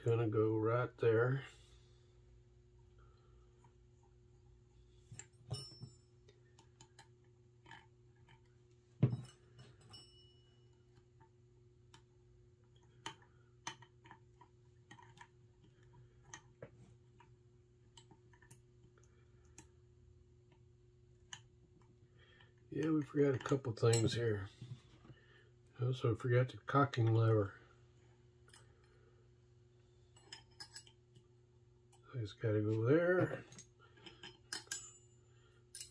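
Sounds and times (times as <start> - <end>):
steady low hum: 0.0 - 35.9
small metal parts clicking: 30.2 - 31.2, 33.5 - 35.0.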